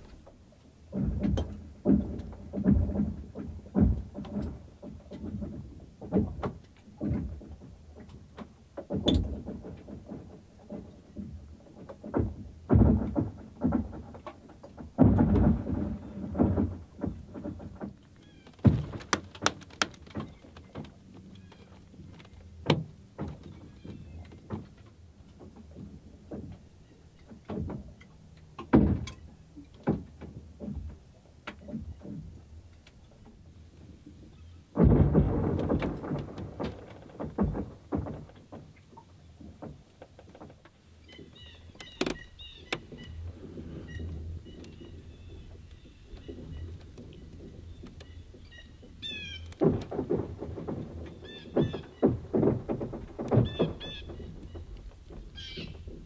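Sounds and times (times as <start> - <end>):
lake ice booming: 0.9 - 7.6, 10.8 - 14.2, 14.9 - 24.2, 28.7 - 29.3, 34.4 - 39.8, 41.1 - 56.0.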